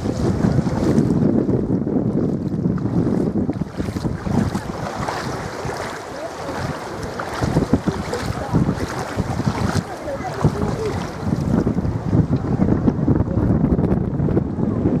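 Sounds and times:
small waves lapping on shore: 0:00.0 - 0:12.8
wind rumbling on microphone: 0:00.0 - 0:15.0
faint voices of bathers: 0:04.4 - 0:13.8.

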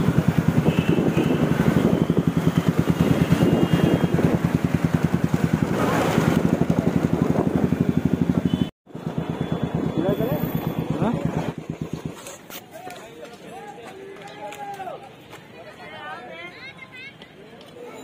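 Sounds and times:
motorcycle engine running: 0:00.0 - 0:12.6
wind noise on microphone: 0:00.3 - 0:04.7, 0:05.6 - 0:08.0.

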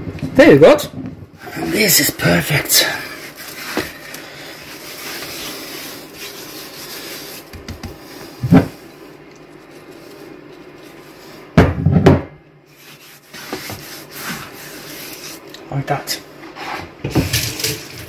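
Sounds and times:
hands rubbing pork rind: 0:01.8 - 0:11.5, 0:12.7 - 0:15.6.

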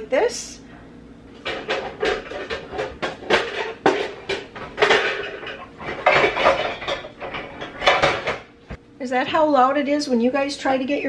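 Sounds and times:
metal baking pans clanking: 0:01.4 - 0:08.5.

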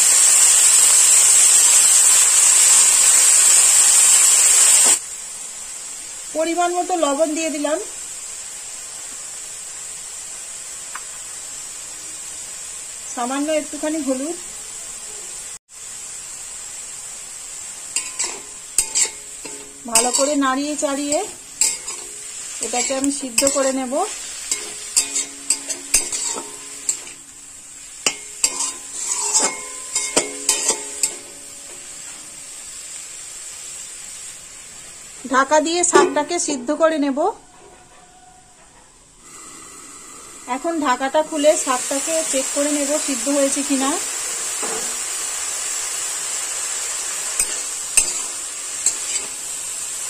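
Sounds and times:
frying sizzle: 0:00.0 - 0:38.4, 0:39.1 - 0:50.0
metal spatula scraping pan: 0:18.0 - 0:27.3, 0:28.1 - 0:32.2, 0:47.4 - 0:49.5.

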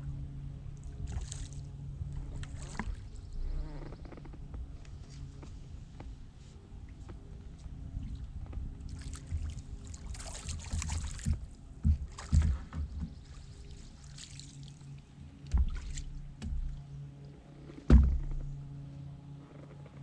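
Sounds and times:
water splashing and dripping: 0:08.9 - 0:16.8
gear knocking against boat hull: 0:10.7 - 0:13.3, 0:15.4 - 0:16.8, 0:17.8 - 0:18.6.

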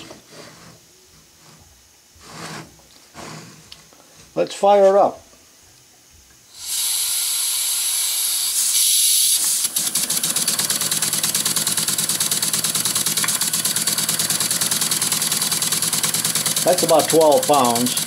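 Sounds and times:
compressed air hissing: 0:06.5 - 0:18.0
steam engine exhaust chuffing: 0:06.5 - 0:18.0.

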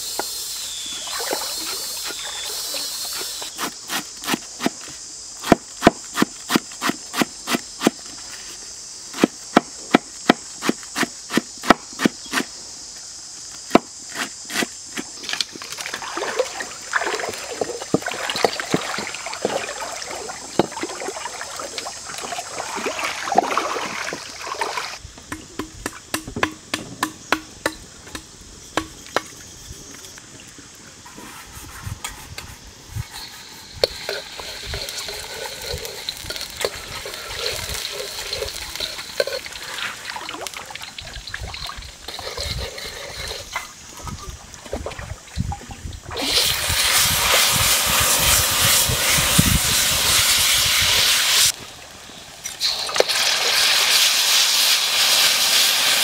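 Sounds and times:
water hissing in hot wok: 0:00.0 - 0:09.5, 0:29.5 - 0:44.6, 0:45.4 - 0:56.0
high insect buzz: 0:00.0 - 0:44.4
sharp chopping strikes: 0:25.3 - 0:29.3.

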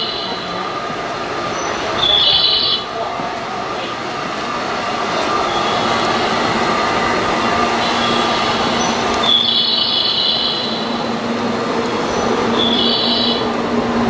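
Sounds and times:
electric train rushing: 0:00.0 - 0:14.0
faint high whine: 0:05.0 - 0:14.0.

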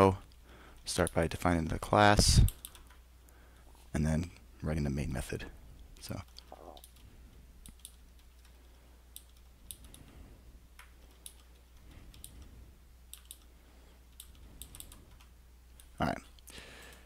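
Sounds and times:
keyboard keystrokes: 0:14.2 - 0:15.9.

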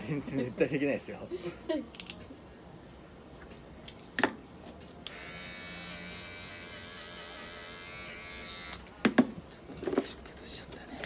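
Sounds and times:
electric hair clipper buzzing: 0:05.0 - 0:08.9.

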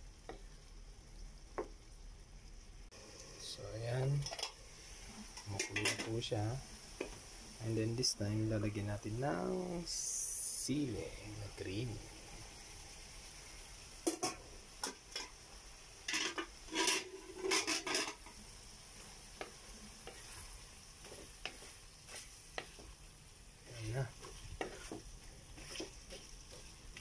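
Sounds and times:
stew sizzling: 0:00.0 - 0:27.0
spatula tapping pan: 0:01.5 - 0:01.8, 0:19.3 - 0:20.4, 0:21.0 - 0:23.1, 0:24.2 - 0:27.0
wooden spatula scraping metal pan: 0:16.1 - 0:18.4, 0:19.4 - 0:23.0, 0:23.6 - 0:27.0.

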